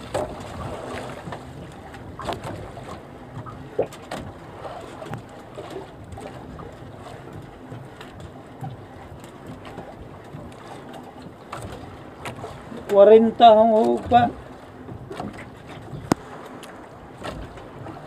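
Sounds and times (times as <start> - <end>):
sea water lapping: 0.0 - 18.0
wind: 0.0 - 18.0
knocks against boat hull: 15.0 - 16.3.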